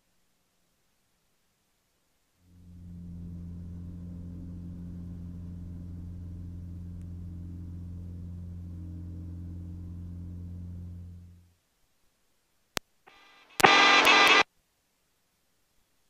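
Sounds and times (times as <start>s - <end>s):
floatplane engine drone: 2.4s - 11.5s.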